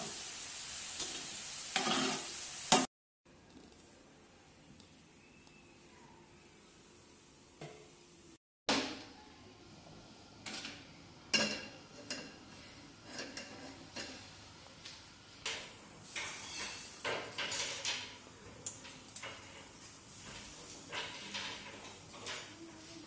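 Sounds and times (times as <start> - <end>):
pans clinking: 1.0 - 2.9, 10.4 - 14.3, 15.4 - 22.6.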